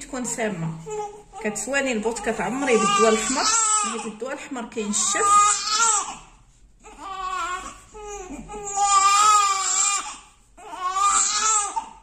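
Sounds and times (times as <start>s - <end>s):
newborn baby crying: 0.8s - 4.2s, 4.9s - 12.0s.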